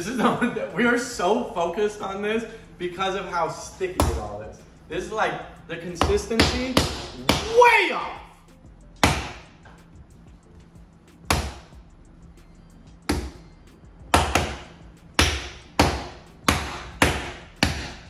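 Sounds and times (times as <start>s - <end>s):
faint background music: 0.0s - 18.0s
sharp hand slaps: 9.0s - 9.5s, 11.3s - 11.7s, 14.1s - 18.0s.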